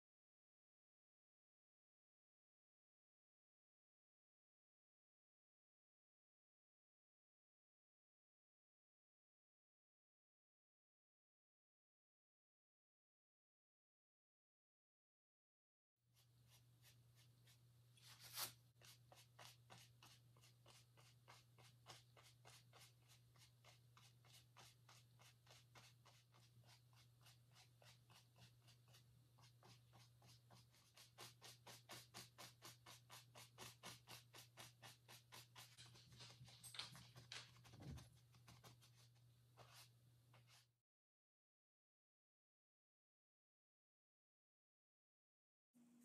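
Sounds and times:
paintbrush scratching on canvas: 0:16.1 - 0:40.8
sharp brush scrape: 0:16.2 - 0:36.6.

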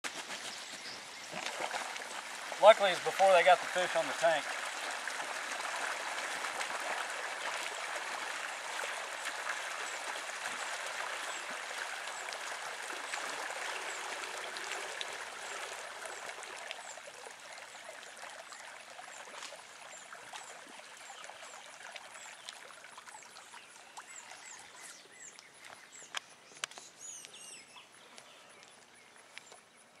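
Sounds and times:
water gushing from hose: 0:00.3 - 0:19.3
small birds chirping: 0:23.6 - 0:30.0.

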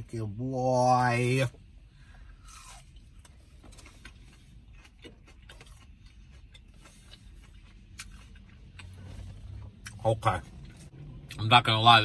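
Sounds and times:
chewing crispy food: 0:02.3 - 0:11.5.

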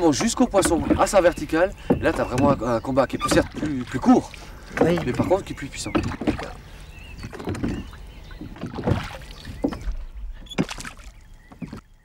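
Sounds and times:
faint squeaks: 0:00.0 - 0:08.6
oars knocking and splashing: 0:00.0 - 0:12.0.

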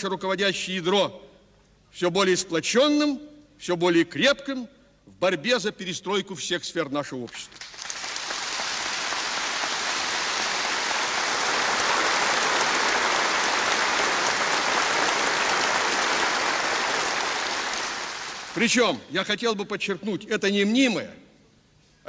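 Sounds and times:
large audience applauding: 0:07.5 - 0:19.0.

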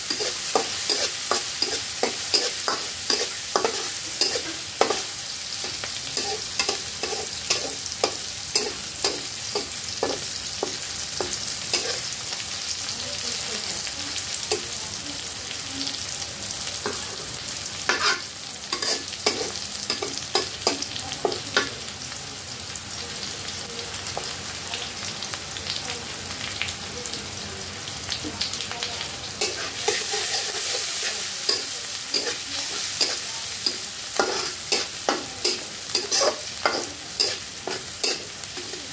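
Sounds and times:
rice sizzling in a wok: 0:00.0 - 0:38.9
metal spatula scraping a pan: 0:00.1 - 0:10.3, 0:11.8 - 0:12.1, 0:17.9 - 0:20.1, 0:29.4 - 0:38.9.

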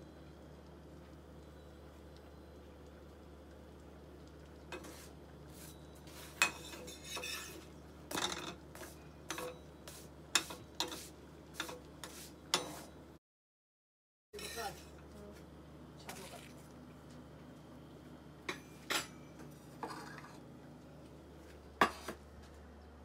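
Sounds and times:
spatula scraping a frying pan: 0:04.7 - 0:13.0, 0:14.4 - 0:15.0, 0:19.8 - 0:20.4, 0:21.8 - 0:22.2.

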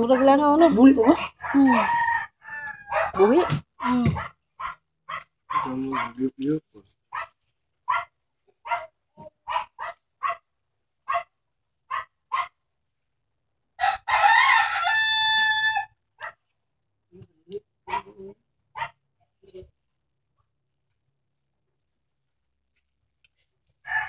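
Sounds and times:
rooster crowing: 0:01.4 - 0:03.3, 0:13.8 - 0:16.0.

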